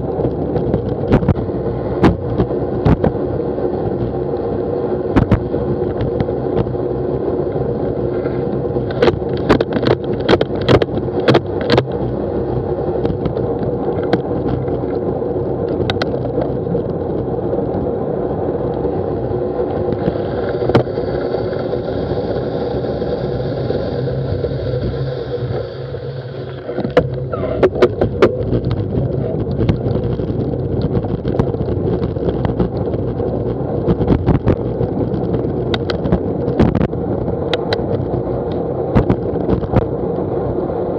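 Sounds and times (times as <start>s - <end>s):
bicycle clicks and knocks over bumps: 0.0s - 22.4s, 26.4s - 40.9s
bicycle tyre and wind noise: 0.0s - 40.9s.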